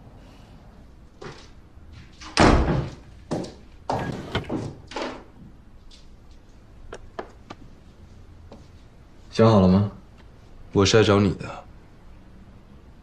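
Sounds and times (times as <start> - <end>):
door shutting with heavy thud: 2.2 - 3.0, 3.9 - 5.2.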